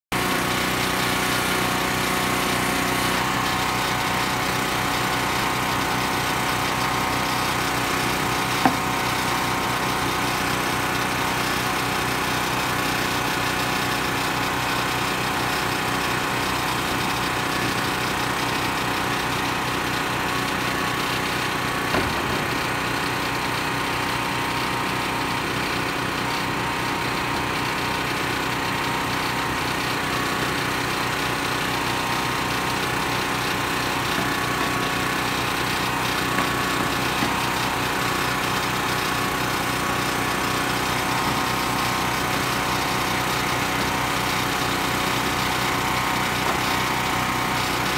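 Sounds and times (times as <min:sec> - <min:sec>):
small engine running: 0:00.1 - 0:47.9
sharp knocks: 0:08.6 - 0:08.9, 0:21.8 - 0:22.9.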